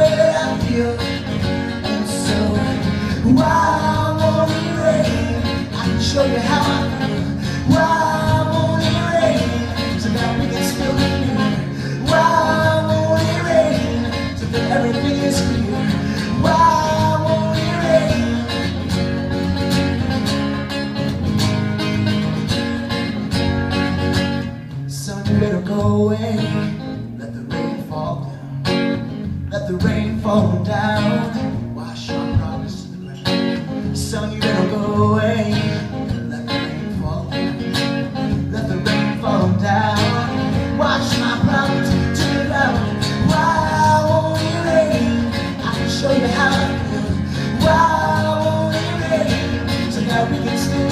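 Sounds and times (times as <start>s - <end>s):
man singing: 0.0s - 19.2s, 24.9s - 28.7s, 29.4s - 50.9s
acoustic guitar strumming: 0.0s - 50.9s.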